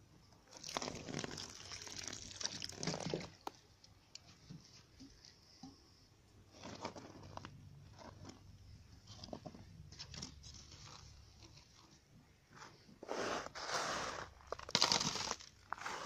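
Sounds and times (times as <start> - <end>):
water splashing and trickling: 0.5 - 3.6
plastic pot rustling: 6.5 - 16.0.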